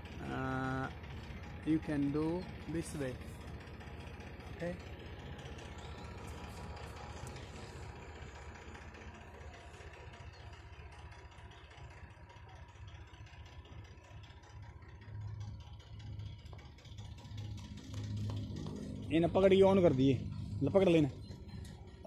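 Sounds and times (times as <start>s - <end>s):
steady low rumble: 15.2s - 22.0s.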